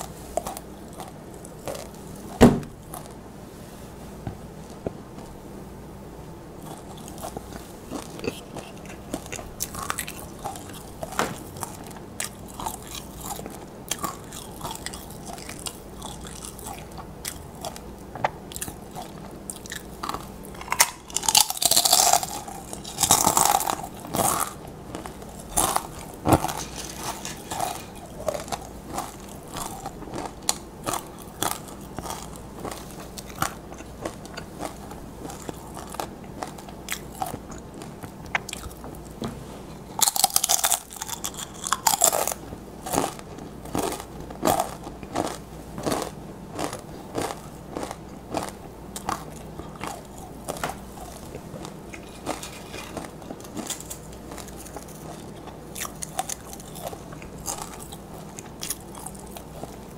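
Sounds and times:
chips being chewed: 0.0 - 3.2, 6.6 - 59.9.

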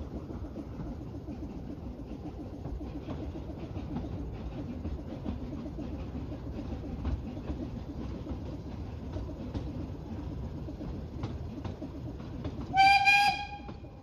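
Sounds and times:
train wheels rumbling on track: 0.0 - 14.0
steam whistle blast: 12.7 - 13.8.

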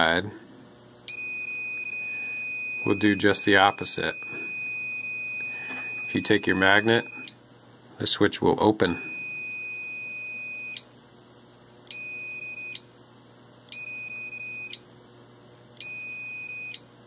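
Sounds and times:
multimeter beeping: 1.1 - 7.4, 8.9 - 10.9, 11.9 - 12.9, 13.7 - 14.8, 15.8 - 16.8.

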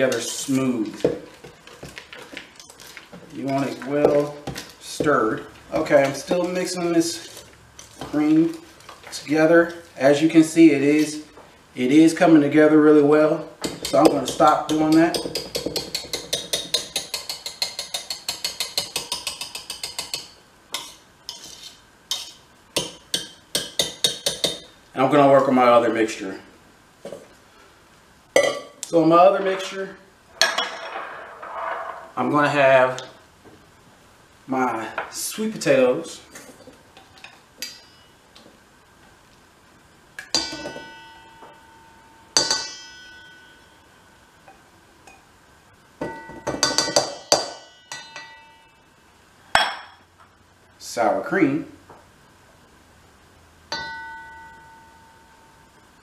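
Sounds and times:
metal mixing bowl clanging: 40.3 - 41.7, 46.0 - 48.7.

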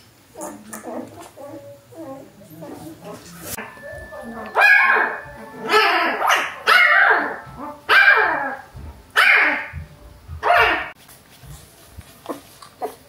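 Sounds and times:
dog yelping: 0.4 - 8.6, 9.2 - 9.8, 10.4 - 11.0.

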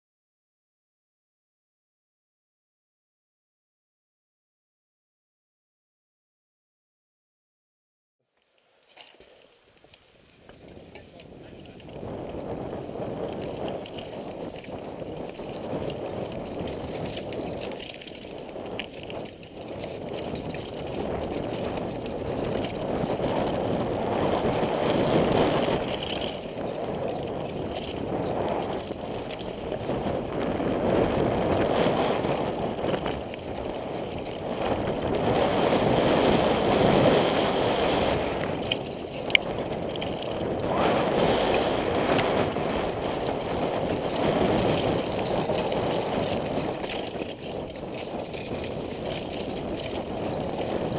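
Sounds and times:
bike tyre and frame rattle: 8.5 - 50.9
wind rushing over microphone: 10.3 - 50.9.

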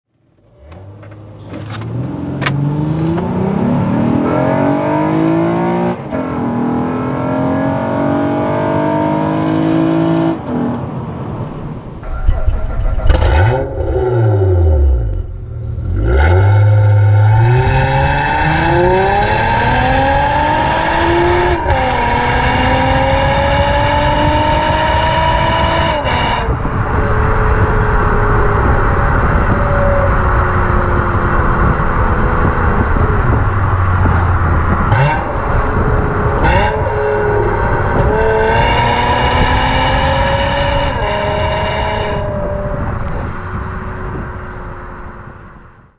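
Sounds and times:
car engine revving through exhaust: 12.1 - 45.3.

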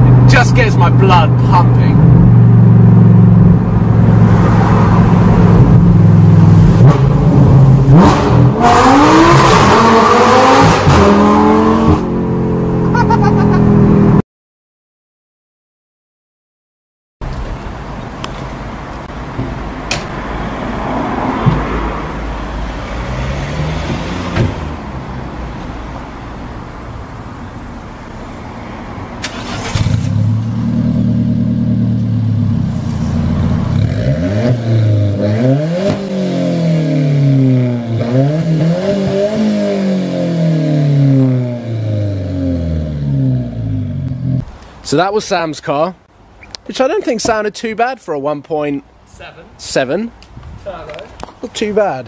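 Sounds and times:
car engine starting and revving: 1.3 - 14.2, 20.6 - 25.3, 29.1 - 44.5.

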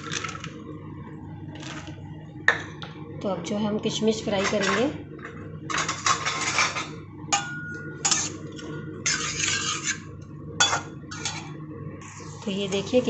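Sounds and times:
metal spatula scraping a pan: 4.4 - 4.9, 5.7 - 10.0, 10.6 - 12.5.

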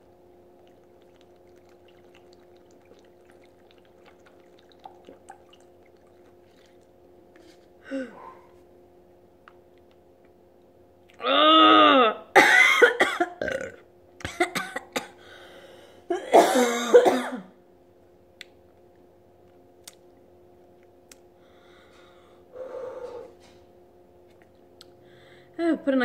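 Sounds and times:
woman groaning: 7.8 - 8.2, 11.2 - 12.3
woman coughing: 12.3 - 13.5, 14.3 - 15.2, 16.1 - 17.5.

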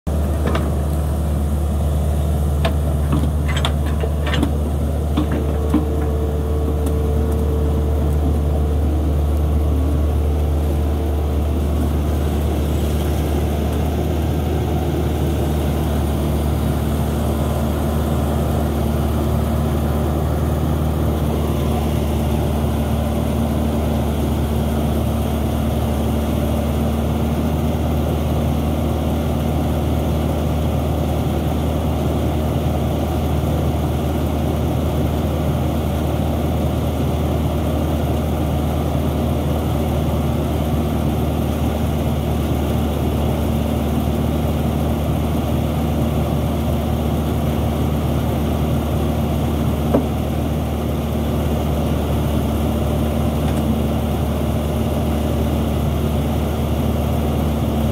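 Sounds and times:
excavator diesel engine running: 0.1 - 57.9.

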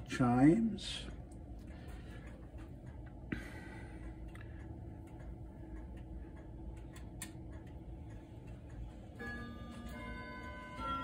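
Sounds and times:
wall clock ticking: 0.0 - 11.0
clock chime ringing: 9.1 - 11.0.

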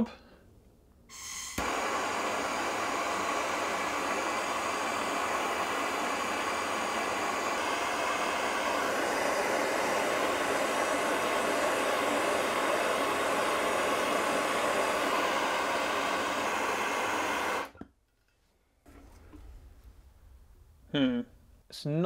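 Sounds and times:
heater rushing hiss: 1.1 - 17.8.

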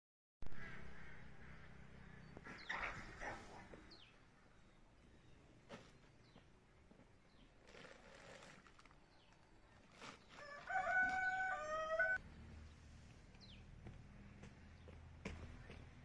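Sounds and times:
rooster crowing: 10.3 - 12.2.

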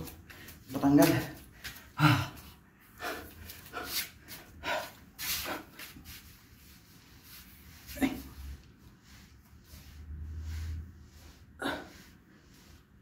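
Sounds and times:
man grunting: 2.0 - 2.4.

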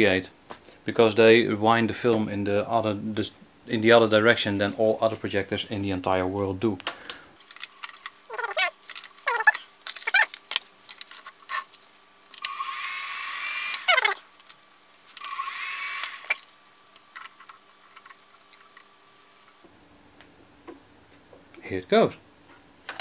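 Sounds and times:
projector whirring: 6.8 - 19.7
film projector clicks and rattles: 12.3 - 16.5.

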